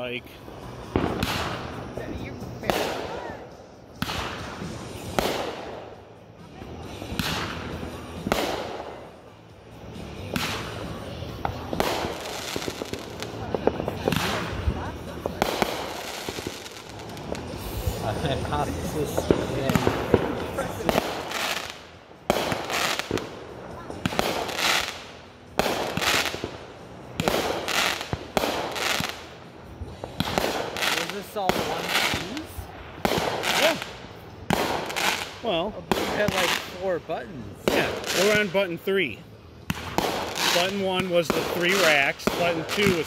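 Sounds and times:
firework cracks with crackling hiss: 0:00.0 - 0:06.1, 0:06.8 - 0:43.0
small firework pops: 0:04.0 - 0:05.8, 0:07.0 - 0:09.0, 0:10.3 - 0:14.6, 0:30.0 - 0:32.3.

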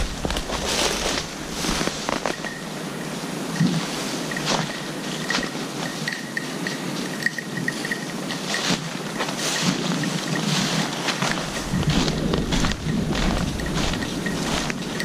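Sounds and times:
footsteps through dry leaves: 0:00.0 - 0:02.7, 0:03.7 - 0:06.0, 0:08.4 - 0:15.0
wind buffeting microphone: 0:00.0 - 0:15.0.

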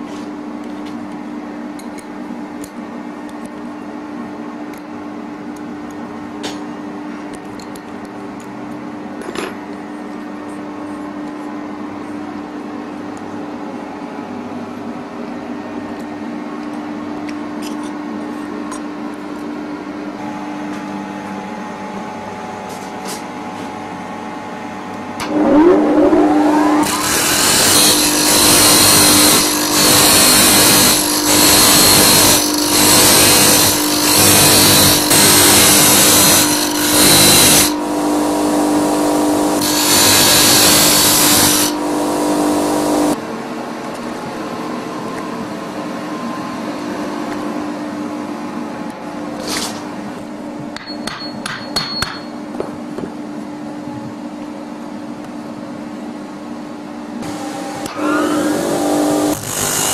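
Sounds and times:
low hum: 0:25.2 - 0:27.0
bench grinder motor whine: 0:25.2 - 0:43.2, 0:57.2 - 0:59.9.

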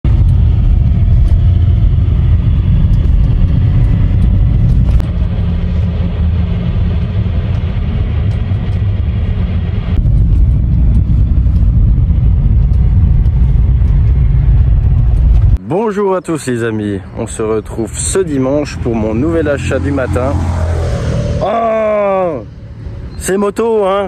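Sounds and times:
car engine and road noise: 0:00.0 - 0:24.0.

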